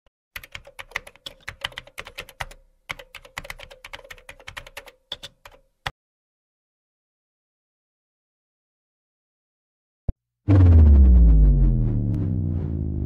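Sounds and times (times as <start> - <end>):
rapid keyboard typing: 0.4 - 5.7.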